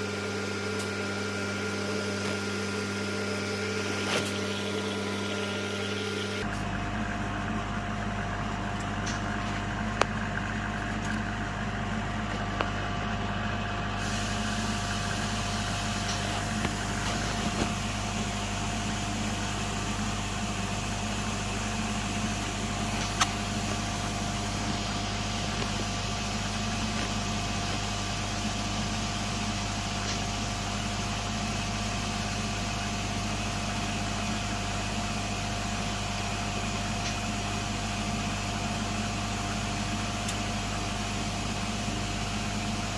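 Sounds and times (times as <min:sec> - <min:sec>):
lab equipment humming: 0:00.0 - 0:31.4.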